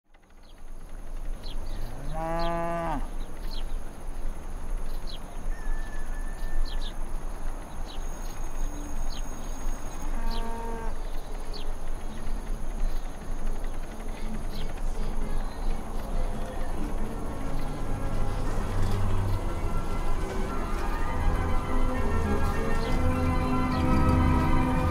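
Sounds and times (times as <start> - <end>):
outdoor background: 0.0 - 24.9
cows mooing: 1.9 - 3.1, 10.1 - 11.0.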